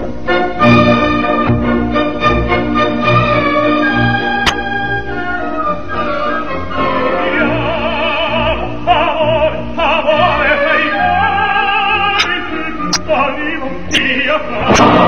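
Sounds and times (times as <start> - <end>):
orchestral accompaniment: 0.0 - 15.0
high operatic voice singing: 7.2 - 14.9.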